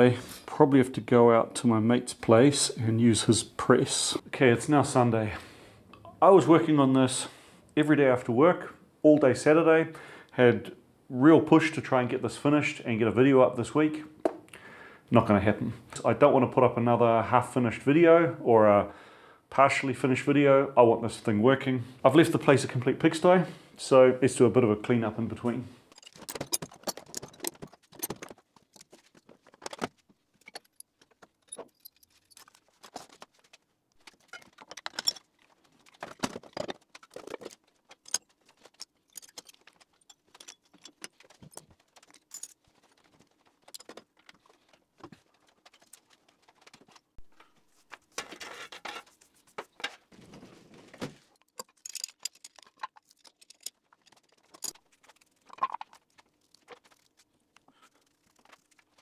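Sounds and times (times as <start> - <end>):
metal tools clinking: 25.9 - 29.0, 30.4 - 33.0, 34.2 - 44.6, 51.4 - 55.9.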